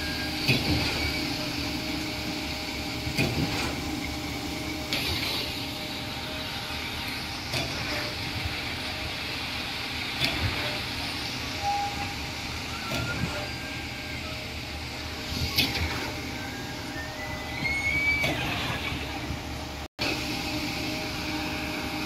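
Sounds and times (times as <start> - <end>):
heavy machinery engines droning: 0.0 - 22.0
thin rising whistle: 11.5 - 18.7.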